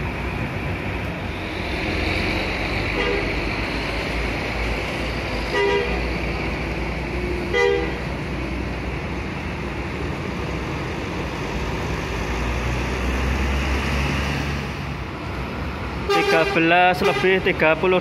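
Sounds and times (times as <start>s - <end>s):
diesel bus engine rumble: 0.0s - 18.0s
bus horn toot: 3.0s - 3.3s, 5.5s - 6.0s, 7.5s - 8.0s, 16.1s - 17.5s.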